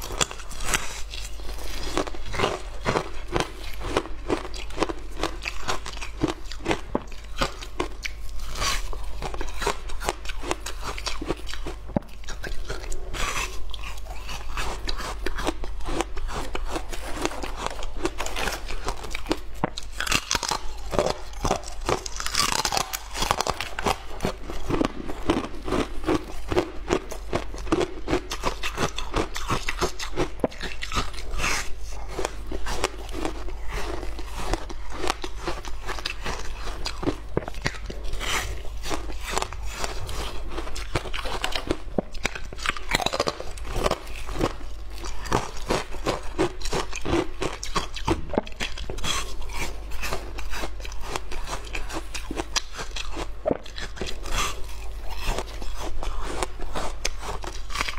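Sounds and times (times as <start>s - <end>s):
crunching frozen ice: 0.0s - 57.9s.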